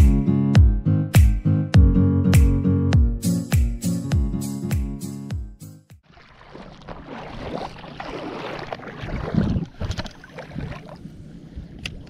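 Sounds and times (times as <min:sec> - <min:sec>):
choppy water: 0:06.0 - 0:12.0
wind noise on microphone: 0:09.1 - 0:12.0.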